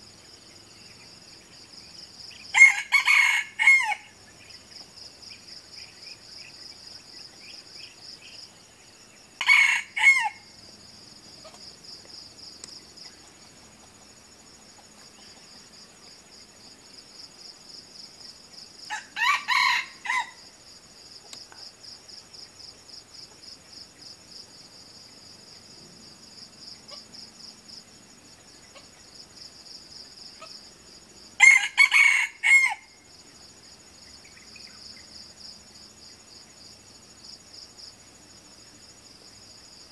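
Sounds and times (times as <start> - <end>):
roosters crowing: 2.5 - 4.2, 9.4 - 10.5, 18.9 - 20.5, 31.4 - 33.0.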